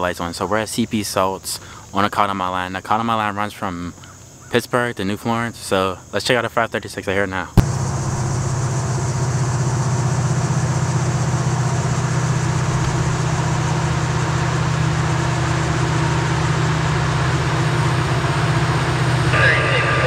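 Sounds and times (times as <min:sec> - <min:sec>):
diesel locomotive engines droning: 0:07.6 - 0:20.0.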